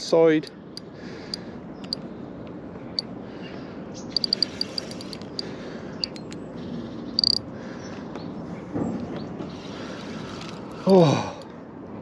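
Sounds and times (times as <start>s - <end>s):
fishing reel drag clicking: 4.2s - 6.3s, 7.2s - 7.4s.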